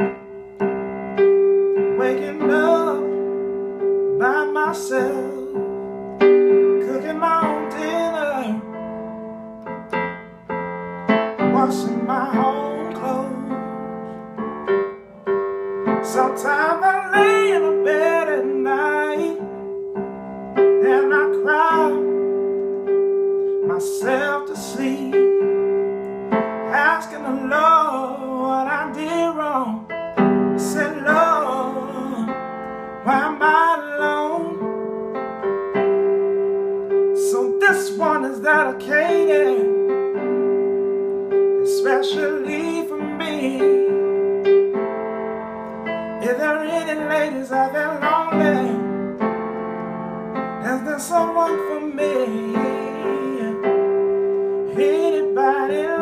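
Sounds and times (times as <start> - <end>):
electronic keyboard piano chords: 0.0 - 56.0
man singing soul blues: 1.9 - 3.4, 4.1 - 5.7, 6.8 - 8.8, 11.2 - 14.2, 15.9 - 19.6, 20.7 - 22.3, 23.7 - 25.4, 26.5 - 34.8, 37.2 - 40.2, 41.5 - 44.4, 46.1 - 49.0, 50.6 - 56.0.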